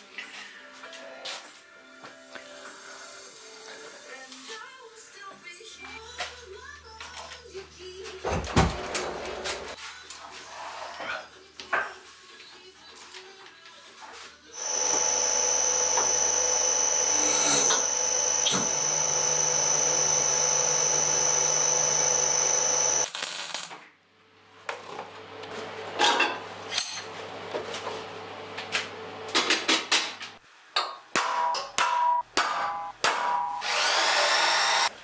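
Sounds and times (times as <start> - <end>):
electric motor and hydraulic pump whine: 14.6 - 23.1, 33.6 - 34.9
crackling bursts of tack welding: 23.0 - 23.7.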